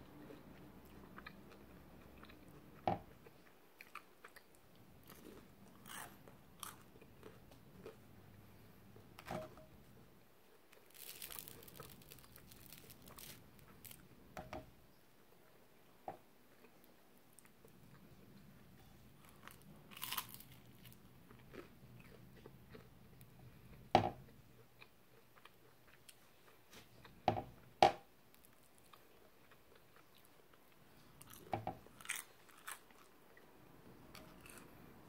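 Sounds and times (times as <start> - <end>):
person chewing: 0.2 - 8.7, 10.7 - 14.1, 19.2 - 27.2, 28.3 - 33.4, 34.1 - 34.8
crunching and biting: 3.8 - 8.0, 10.8 - 14.0, 19.2 - 22.9, 31.2 - 33.1, 34.2 - 34.8.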